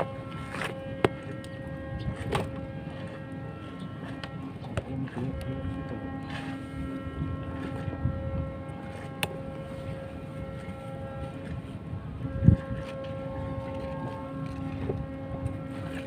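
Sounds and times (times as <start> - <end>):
steady engine hum: 0.0 - 16.0
wind rumbling on microphone: 0.0 - 16.0.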